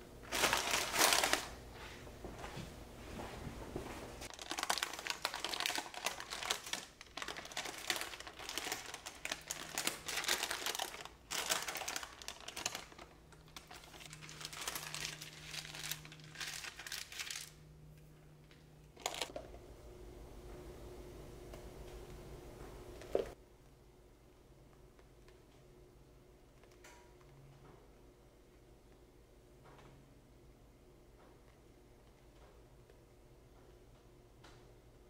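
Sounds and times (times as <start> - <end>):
paper peeling and crinkling: 0.3 - 1.6, 4.3 - 17.5, 19.0 - 19.3.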